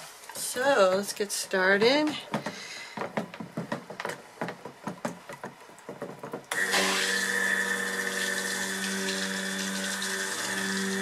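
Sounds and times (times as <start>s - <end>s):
immersion blender running: 6.5s - 11.0s.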